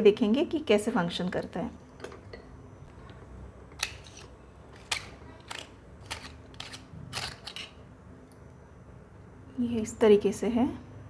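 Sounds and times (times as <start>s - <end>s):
metal grinder clicks: 3.8s - 7.8s.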